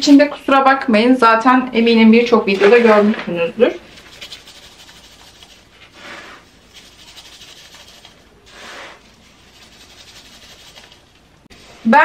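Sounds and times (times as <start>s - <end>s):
scoop scraping through cat litter: 4.0s - 11.9s.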